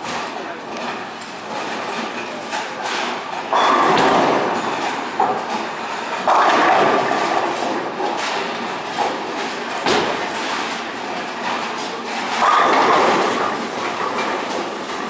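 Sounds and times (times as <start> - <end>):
distant bowling lane noise: 0.0 - 15.0
bowling ball rolling: 3.5 - 10.8, 12.2 - 15.0.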